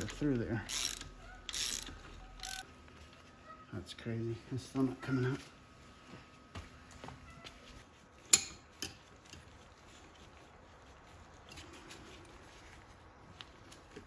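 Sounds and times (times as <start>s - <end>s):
faint handling noises: 4.3s - 14.0s.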